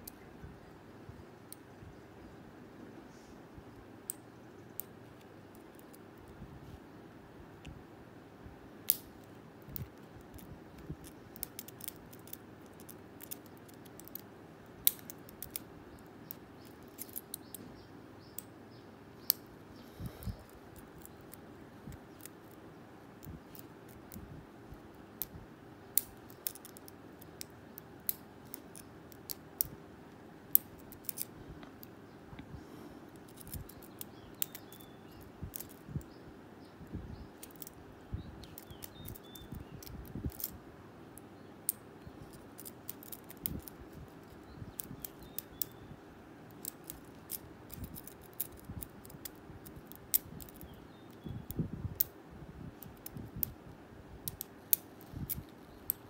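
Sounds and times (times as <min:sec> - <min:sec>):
lock pick clicking in padlock: 0:38.4 - 0:40.6, 0:41.7 - 0:44.1, 0:46.5 - 0:52.1.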